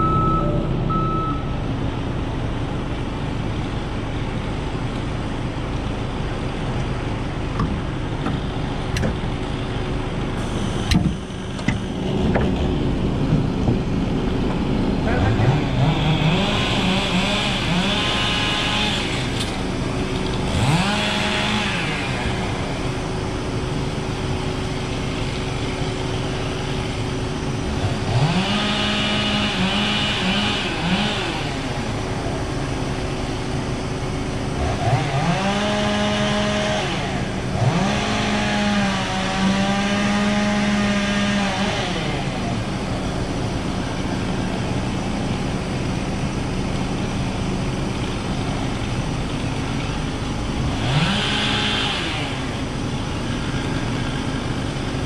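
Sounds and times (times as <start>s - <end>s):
small engine revving: 15.0s - 46.4s, 47.1s - 55.0s.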